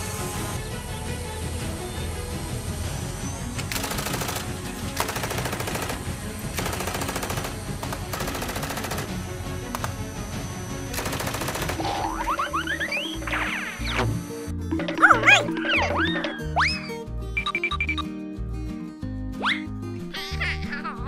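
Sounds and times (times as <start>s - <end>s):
background music: 0.0s - 21.0s
rapid-fire rattling: 3.7s - 10.1s, 10.8s - 12.1s.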